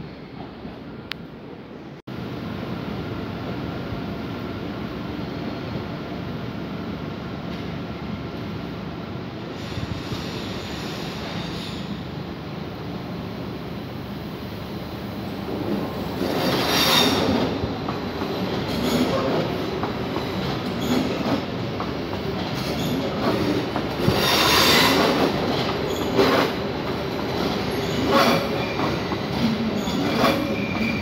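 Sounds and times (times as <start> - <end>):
train wheel screeching: 9.6 - 12.0, 16.2 - 17.6, 22.6 - 26.6, 27.4 - 31.0
train wheels rumbling: 15.4 - 31.0.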